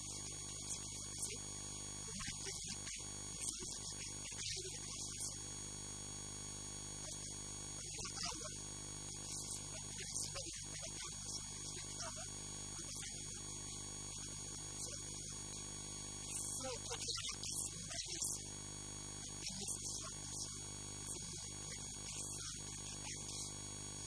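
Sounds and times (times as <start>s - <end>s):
electrical mains hum: 0.0s - 24.0s
man speaking: 2.1s - 5.4s, 7.8s - 8.6s, 9.2s - 13.4s, 16.2s - 18.4s.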